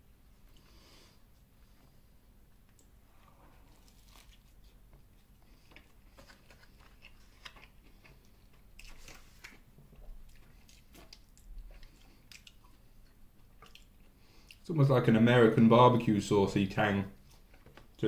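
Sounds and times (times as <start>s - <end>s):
person chewing: 2.7s - 14.6s, 17.2s - 18.0s.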